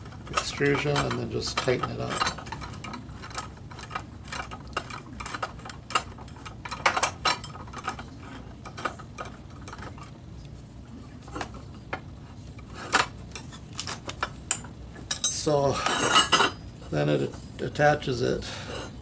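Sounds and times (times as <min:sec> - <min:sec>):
metal parts clicking and clinking: 0:00.1 - 0:10.1, 0:12.9 - 0:16.6.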